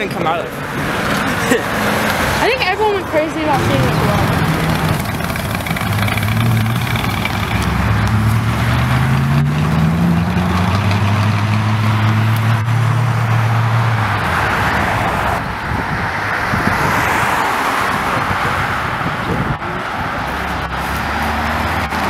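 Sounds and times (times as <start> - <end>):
car engine accelerating: 0.0 - 22.0
tyres hissing on road: 19.4 - 22.0.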